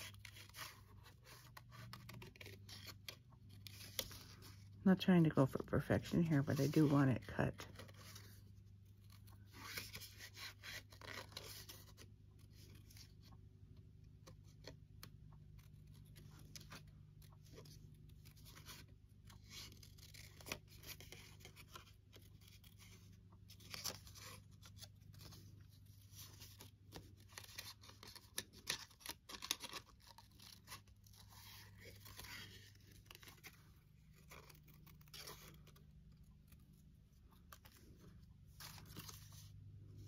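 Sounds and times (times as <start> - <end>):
paper rustling: 0.0 - 4.8, 5.5 - 13.4, 14.2 - 40.0
scissors snipping paper: 27.0 - 33.5.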